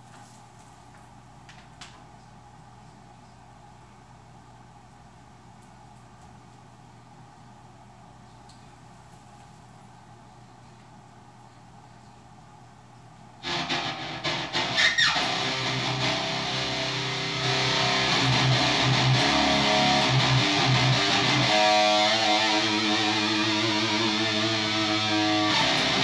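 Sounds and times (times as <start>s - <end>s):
distorted electric guitar: 13.4s - 26.0s.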